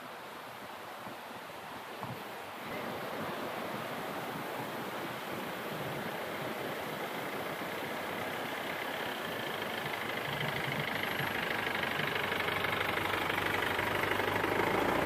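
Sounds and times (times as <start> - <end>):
vehicle engine approaching: 6.0 - 15.0.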